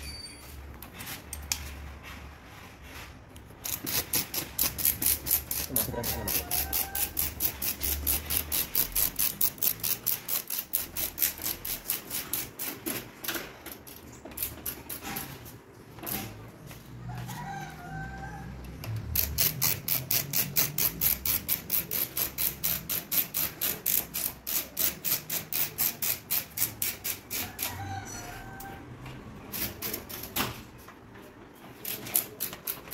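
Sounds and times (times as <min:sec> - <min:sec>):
ratchet screwdriver clicking: 0:03.6 - 0:12.8, 0:18.9 - 0:27.7.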